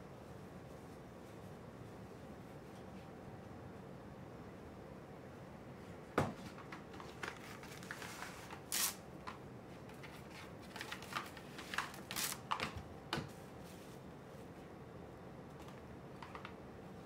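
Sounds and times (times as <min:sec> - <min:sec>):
plastic cling film crinkling: 0:06.9 - 0:09.0, 0:10.0 - 0:12.8
cling film hissing pulls: 0:08.7 - 0:09.0.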